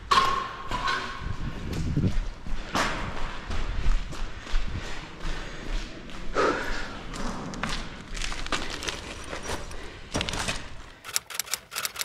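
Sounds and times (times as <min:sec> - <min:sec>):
footsteps crunching over grit: 0:01.4 - 0:10.8
sharp clicks: 0:11.0 - 0:12.0.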